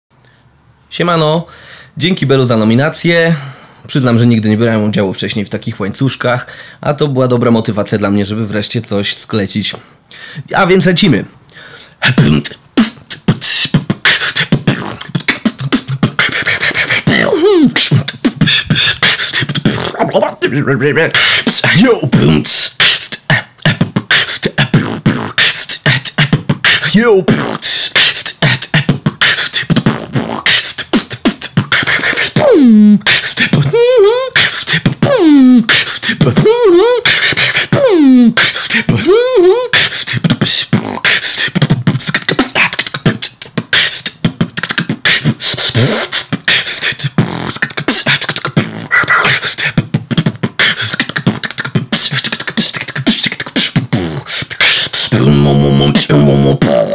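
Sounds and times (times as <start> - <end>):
beatboxing drum sounds: 11.5 - 56.9
swooping vocal notes: 12.0 - 56.9.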